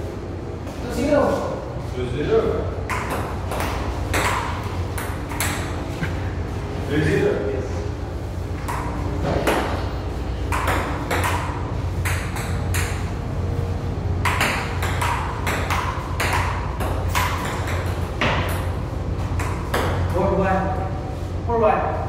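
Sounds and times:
steady low hum: 0:00.0 - 0:22.0
table tennis ball clicking: 0:10.5 - 0:13.1.

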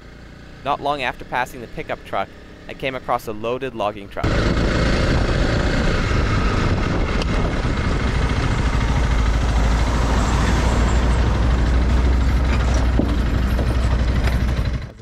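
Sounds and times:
motorcycle engine running: 0:00.0 - 0:03.6, 0:04.2 - 0:15.0
truck passing with low rumble: 0:04.2 - 0:15.0.

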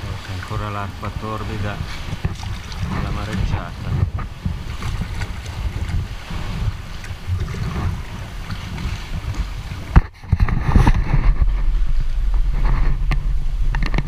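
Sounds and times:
water splashing around kayak: 0:00.0 - 0:14.0
wind noise on microphone: 0:00.0 - 0:14.0.

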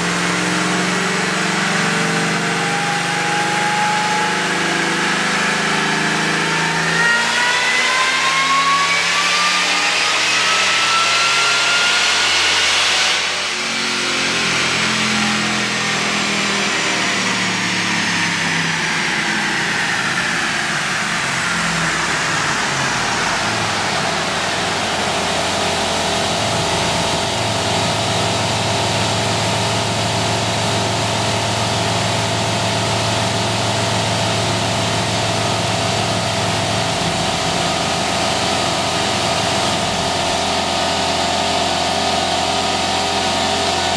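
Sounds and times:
engine and supercharger whine: 0:00.0 - 0:43.9
engine idling: 0:12.6 - 0:43.9.

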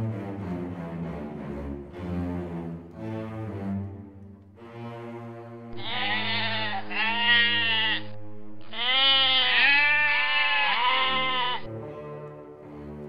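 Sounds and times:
sheep bleating: 0:05.8 - 0:11.7.

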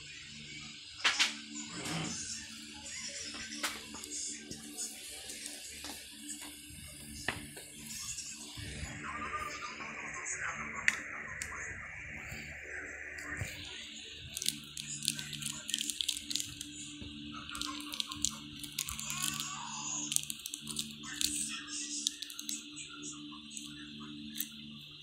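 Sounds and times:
steady low hum: 0:02.1 - 0:25.0
cards and plastic wrapping crinkling: 0:13.2 - 0:16.8, 0:17.4 - 0:22.7.

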